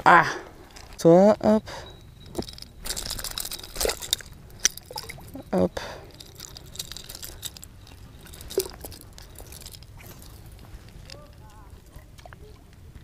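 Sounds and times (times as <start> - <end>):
water dripping: 2.3 - 5.6.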